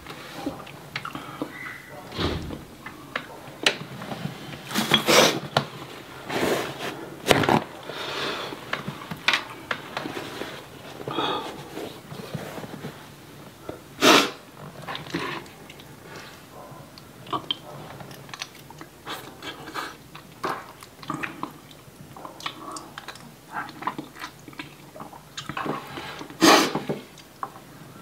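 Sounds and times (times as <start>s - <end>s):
chewing and wet mouth smacks: 16.9s - 25.8s.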